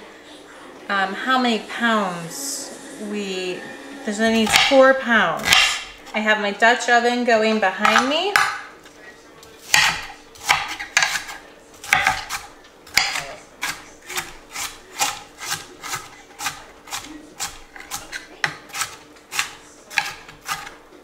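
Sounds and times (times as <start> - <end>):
knife chopping on cutting board: 4.4 - 4.8, 5.4 - 6.0, 7.8 - 8.7, 9.6 - 20.8
knife blade scraping: 9.8 - 20.8.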